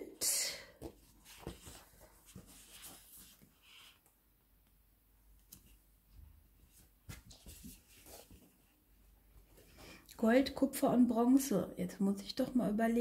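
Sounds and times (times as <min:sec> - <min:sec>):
cardstock sheets rustling: 0:00.8 - 0:04.0.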